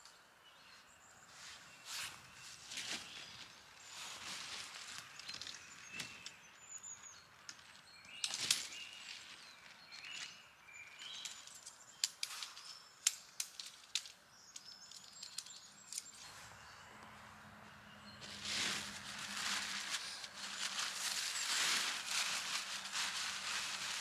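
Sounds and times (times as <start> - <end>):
small birds chirping: 0.0 - 24.0
sharp clicks and snaps: 11.2 - 16.2.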